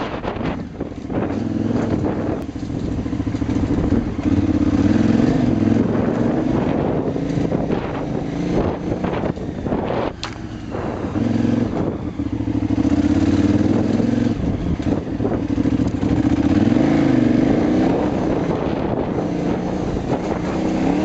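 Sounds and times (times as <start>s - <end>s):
motorcycle engine revving: 0.0s - 21.0s.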